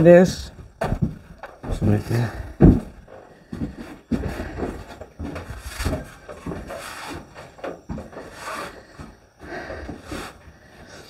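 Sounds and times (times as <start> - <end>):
handling knocks and thuds: 0.7 - 8.2.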